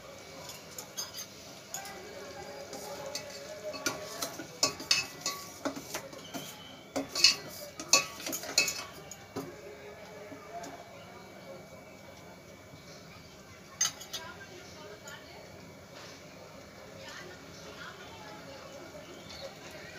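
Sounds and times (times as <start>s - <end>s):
ladle scraping and clinking pot: 2.7s - 9.2s.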